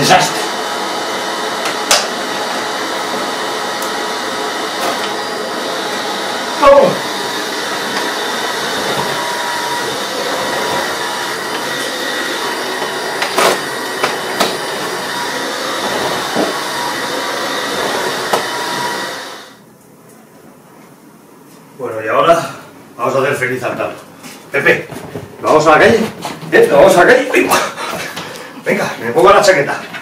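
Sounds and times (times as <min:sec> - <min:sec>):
vacuum cleaner whining: 0:00.0 - 0:19.6.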